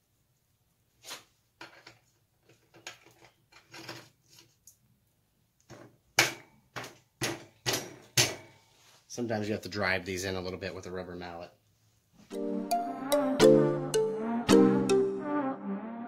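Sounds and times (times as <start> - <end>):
small metal clicks and scrapes: 1.6 - 4.8.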